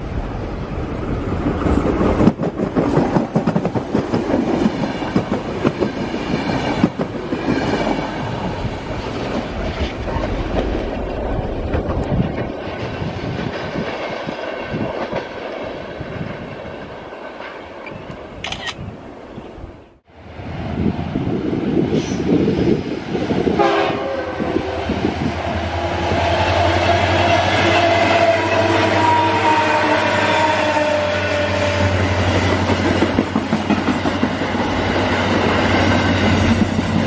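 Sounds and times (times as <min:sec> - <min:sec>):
wheels clattering on rails: 0:00.0 - 0:18.2, 0:32.3 - 0:37.0
electric train passing: 0:00.0 - 0:18.4, 0:19.0 - 0:37.0.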